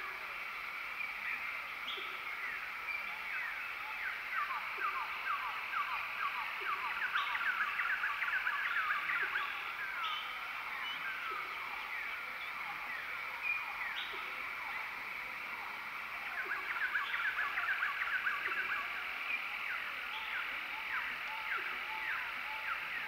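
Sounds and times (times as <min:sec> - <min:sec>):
steady high hum: 0:00.0 - 0:23.0.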